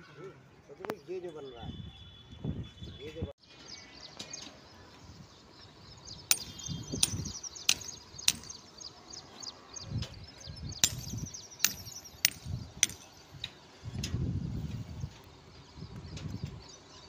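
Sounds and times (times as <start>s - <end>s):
birds chirping faintly: 0.1s - 17.0s
metal tool striking rebar: 6.3s - 8.6s, 10.8s - 13.5s.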